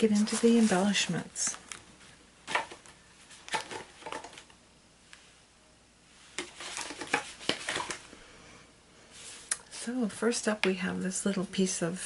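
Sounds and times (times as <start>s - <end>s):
craft supplies rustling: 0.0s - 4.5s, 6.3s - 8.1s.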